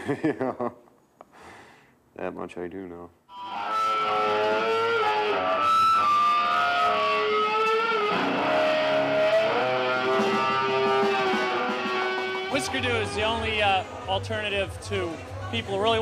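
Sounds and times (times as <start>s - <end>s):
distorted electric guitar sliding notes: 3.3s - 14.1s
loud rock music: 3.3s - 16.0s.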